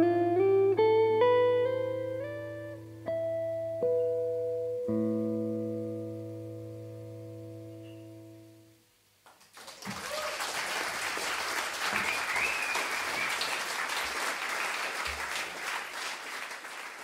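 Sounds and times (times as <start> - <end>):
guitar and keyboard chord: 0.0 - 8.8
audience applause: 9.3 - 17.0
whistle from crowd: 11.9 - 13.6.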